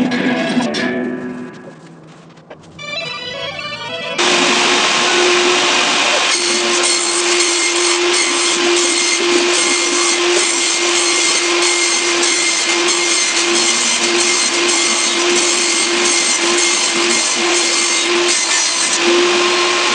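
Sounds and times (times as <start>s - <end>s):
table saw ripping a sheet: 4.2s - 19.9s.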